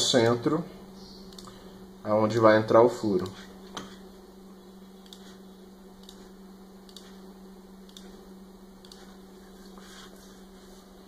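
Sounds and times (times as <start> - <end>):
low hum: 0.0 - 11.0
faint mouse clicks: 1.3 - 1.6.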